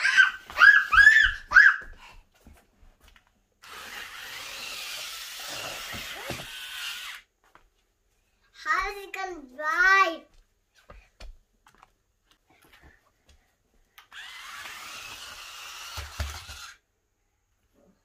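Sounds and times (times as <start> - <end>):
toy car motors whirring: 3.6 - 7.3, 14.0 - 16.8.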